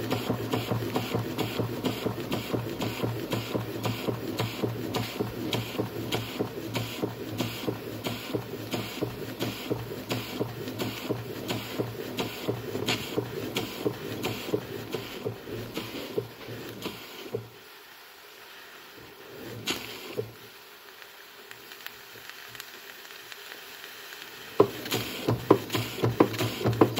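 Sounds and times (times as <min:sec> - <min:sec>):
model steam engine clatter: 0:00.0 - 0:17.5, 0:24.2 - 0:26.9.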